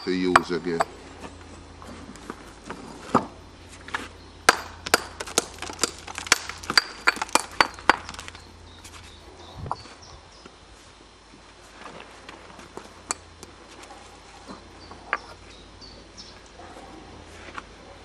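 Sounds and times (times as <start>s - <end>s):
brick axe striking brick: 4.5s - 8.4s.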